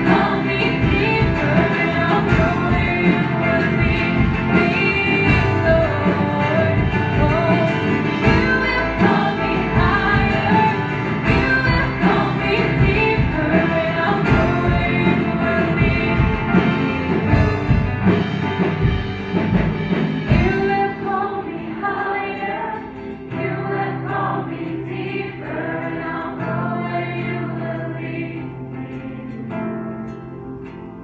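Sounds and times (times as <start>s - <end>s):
group singing worship song: 0.0s - 18.9s, 20.3s - 30.2s
drums playing: 0.0s - 21.3s
held guitar and keyboard chords: 0.0s - 31.0s.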